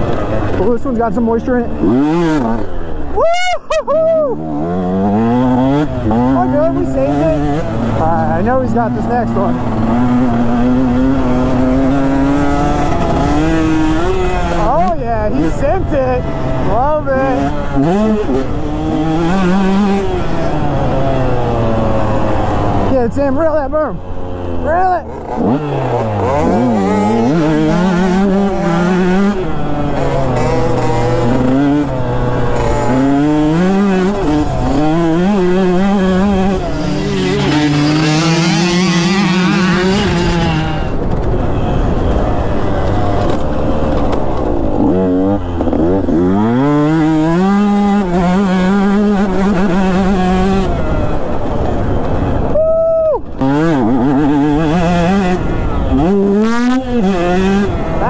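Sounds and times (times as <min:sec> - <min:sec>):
dirt bike engine revving: 0:00.0 - 0:03.6, 0:04.3 - 0:52.6, 0:53.2 - 0:58.0.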